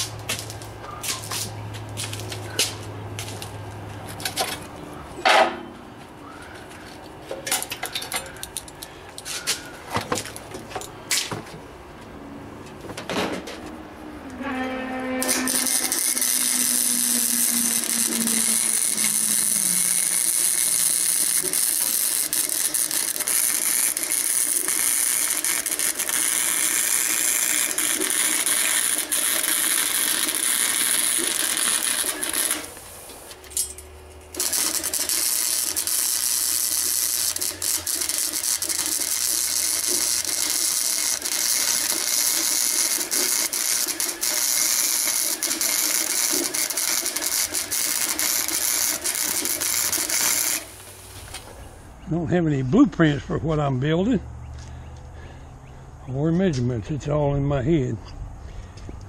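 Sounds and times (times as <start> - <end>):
welding arc crackling: 0.0 - 4.6, 14.2 - 51.7.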